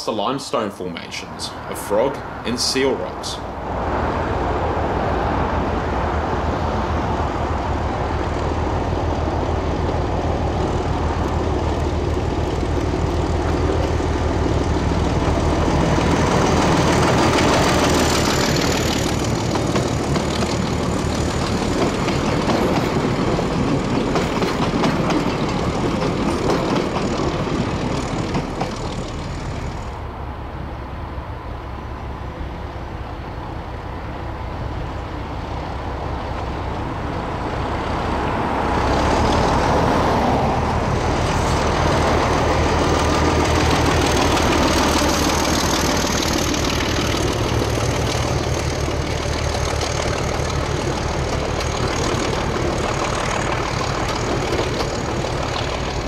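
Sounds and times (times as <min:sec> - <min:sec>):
diesel locomotive engine: 0:00.0 - 0:56.0
train wheels clattering on rails: 0:06.8 - 0:29.9, 0:36.2 - 0:56.0.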